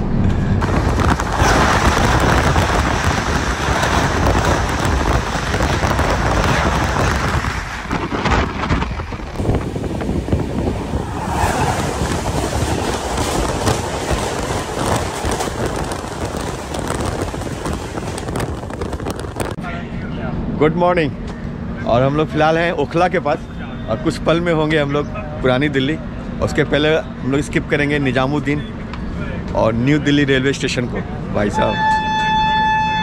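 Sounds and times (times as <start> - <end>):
train wheels rumbling on track: 0.2 - 19.6
wind buffeting microphone: 0.5 - 19.6.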